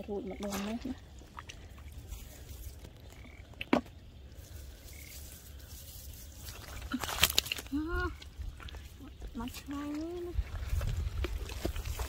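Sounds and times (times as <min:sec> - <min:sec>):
frog chirps: 0:03.0 - 0:03.8.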